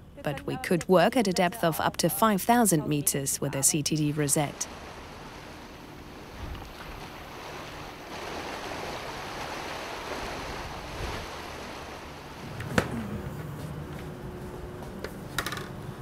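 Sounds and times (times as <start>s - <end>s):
sea water splashing against ship: 4.6s - 13.1s
wind on microphone: 6.2s - 13.3s.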